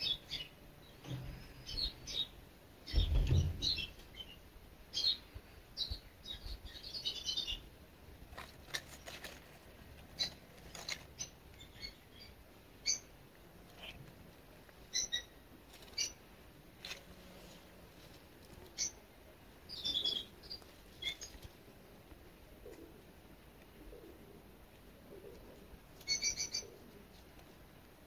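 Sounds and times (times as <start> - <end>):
small birds chirping: 0.0 - 7.7, 8.4 - 17.0, 18.0 - 21.7, 26.0 - 27.0.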